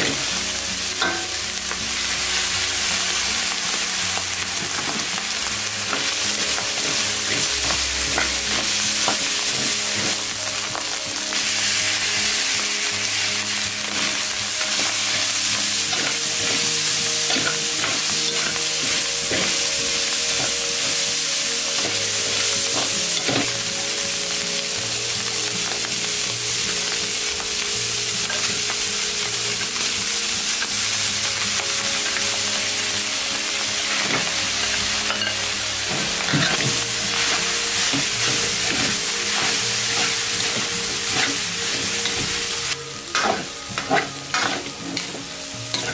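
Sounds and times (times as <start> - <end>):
meat and vegetables sizzling in a wok: 0.0 - 45.9
metal spatula scraping a pan: 13.8 - 23.7, 33.8 - 45.9.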